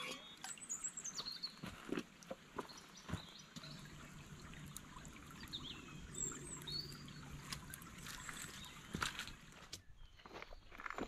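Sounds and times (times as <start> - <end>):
stream trickling over stones: 0.0 - 11.0.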